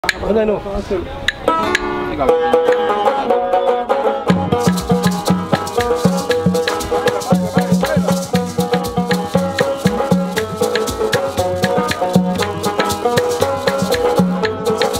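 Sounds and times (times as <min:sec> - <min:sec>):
strummed banjo: 0:01.3 - 0:14.9
acoustic guitar strumming: 0:01.5 - 0:14.9
maracas shaking: 0:04.3 - 0:14.9.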